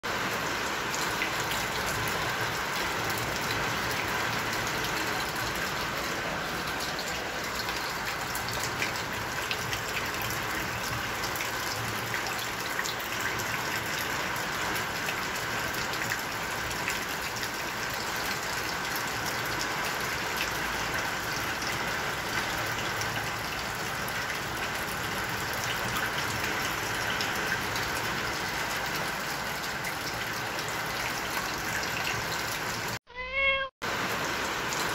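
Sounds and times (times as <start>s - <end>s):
water rushing: 0.1s - 33.0s.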